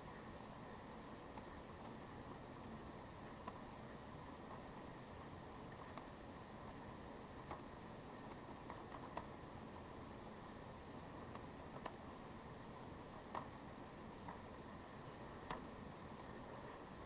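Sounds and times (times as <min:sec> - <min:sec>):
faint room hiss: 0:00.0 - 0:17.0.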